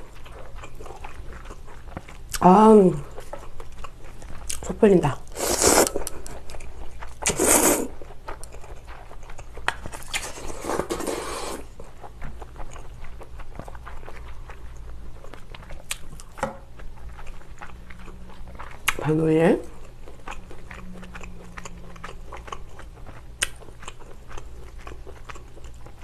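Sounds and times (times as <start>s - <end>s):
close-up chewing: 0.0s - 26.0s
noodles slurped: 5.3s - 6.3s, 7.2s - 8.0s, 10.0s - 11.8s.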